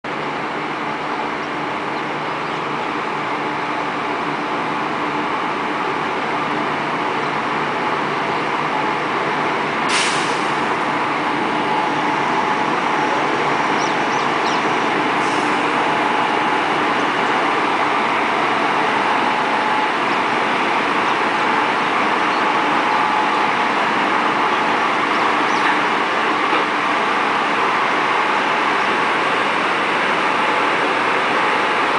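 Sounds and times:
electric locomotive running: 0.2s - 31.9s
short high hiss: 9.9s - 10.6s.

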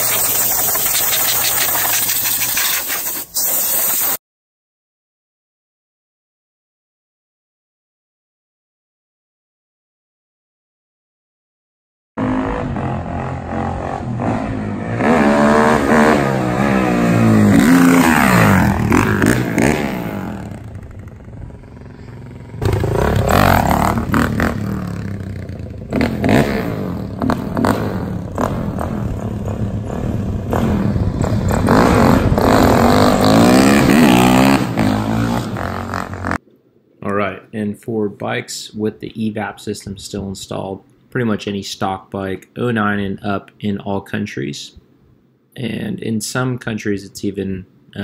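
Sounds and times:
motorcycle engine revving: 0.0s - 3.2s, 12.2s - 36.4s.

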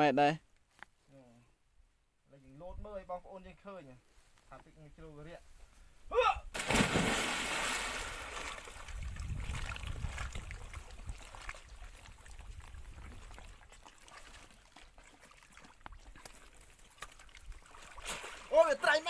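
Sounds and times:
person shouting: 6.1s - 6.5s
loud splash into water: 6.5s - 10.3s
water sloshing: 6.6s - 18.6s.

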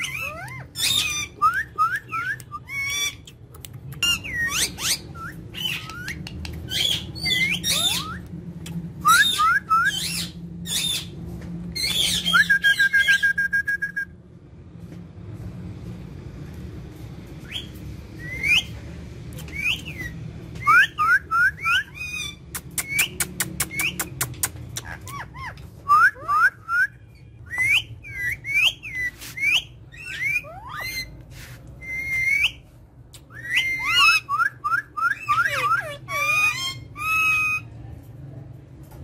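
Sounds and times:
parakeets chirping: 0.0s - 11.2s, 11.8s - 13.2s, 17.4s - 18.8s, 27.2s - 32.6s, 33.3s - 37.7s.

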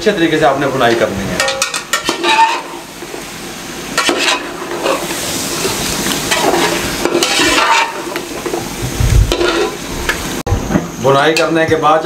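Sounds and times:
chicken sizzling in a pot: 0.4s - 10.4s
metal spoon scraping a pot: 1.4s - 2.8s, 4.0s - 8.2s, 9.3s - 9.8s.

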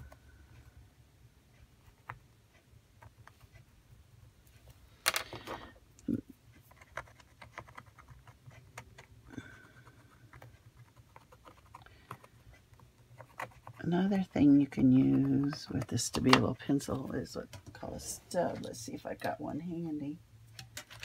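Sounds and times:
pencil scratching on paper: 10.0s - 15.5s.

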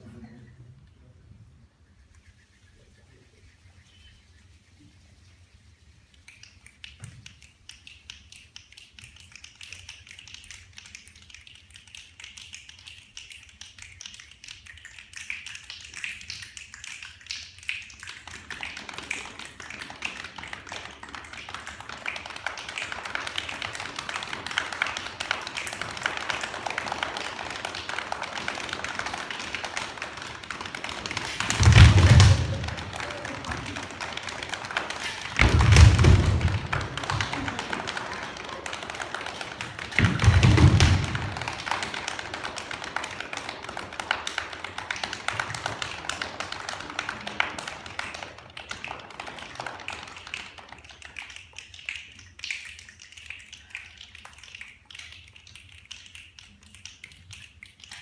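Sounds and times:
hands rubbing: 4.3s - 42.5s
finger snaps: 6.1s - 18.0s
leg slapping: 16.2s - 46.9s
feet stomping: 31.0s - 33.8s, 34.8s - 38.0s, 39.7s - 41.6s.

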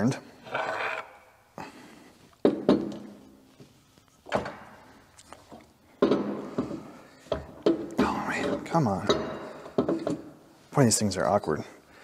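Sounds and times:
metal parts clunking and knocking: 5.5s - 10.3s.

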